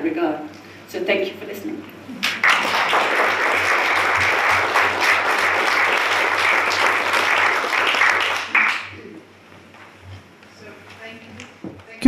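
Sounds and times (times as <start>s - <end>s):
audience applauding: 2.2s - 9.0s.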